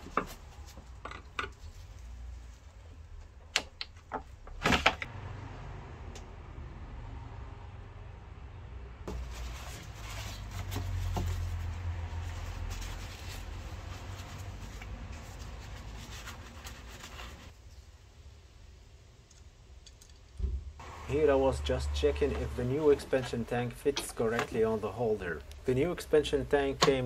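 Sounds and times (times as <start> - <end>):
paper towel rustling: 9.1 - 17.6.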